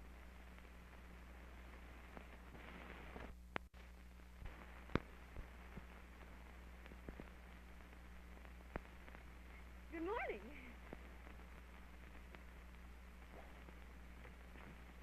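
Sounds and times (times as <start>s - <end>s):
low hum and hiss: 0.0s - 15.0s
film pops and clicks: 1.7s - 9.4s.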